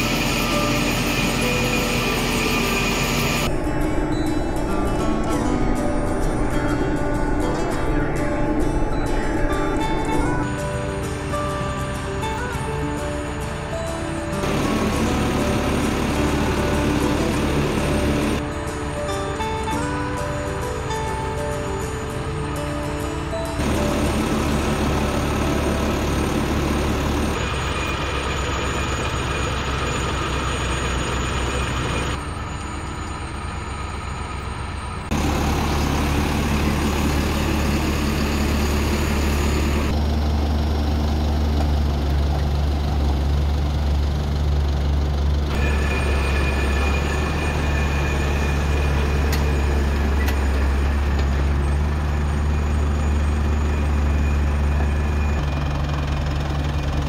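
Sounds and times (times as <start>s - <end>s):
tractor engine running: 0.0s - 57.0s
harvester machinery clatter: 13.3s - 18.4s, 23.0s - 57.0s.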